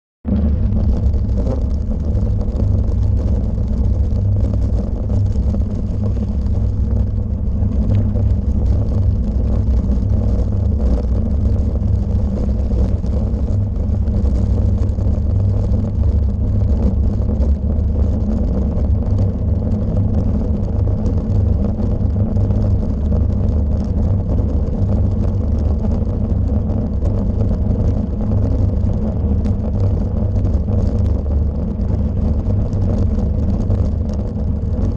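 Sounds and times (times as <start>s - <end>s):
wind on microphone: 0.2s - 34.9s
bicycle rumbling over cobblestones: 0.3s - 34.9s
camera rattling: 0.4s - 16.3s.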